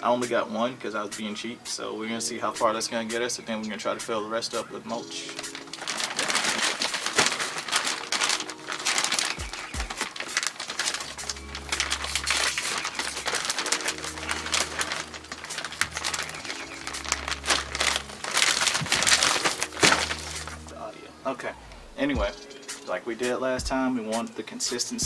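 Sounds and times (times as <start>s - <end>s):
background music: 0.0s - 25.0s
plastic bag crinkling: 4.5s - 20.8s.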